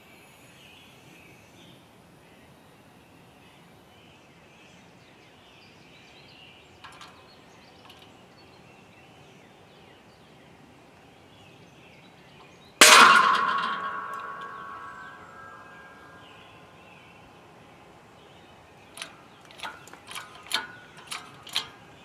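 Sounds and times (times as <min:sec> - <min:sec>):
loud metallic bang ringing: 0:12.8 - 0:16.3.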